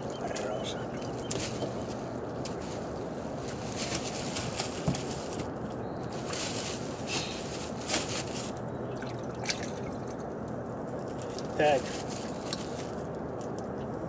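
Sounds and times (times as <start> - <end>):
steady rushing background: 0.0 - 6.2.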